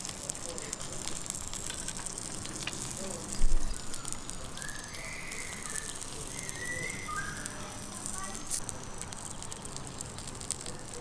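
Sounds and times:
coals crackling and popping: 0.0 - 11.0
skewers sizzling over charcoal: 0.0 - 11.0
bird chirping: 3.6 - 7.5.

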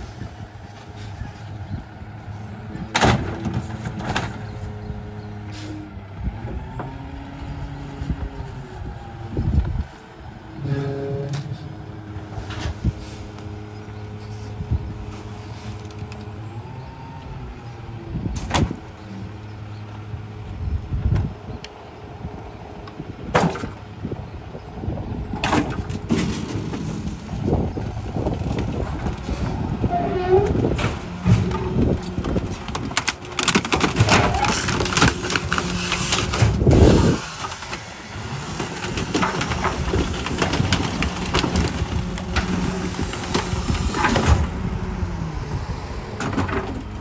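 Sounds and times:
junk crashing into hopper: 2.7 - 4.6, 25.3 - 29.7, 30.4 - 44.9.

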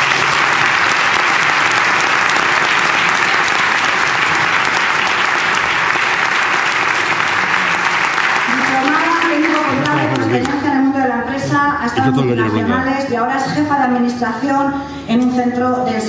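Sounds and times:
audience applauding: 0.0 - 10.8.

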